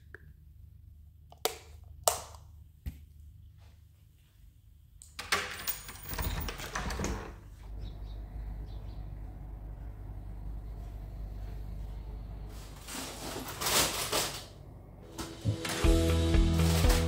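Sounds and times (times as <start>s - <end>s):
low steady hum: 7.4s - 15.8s
rustling and clattering: 12.5s - 14.5s.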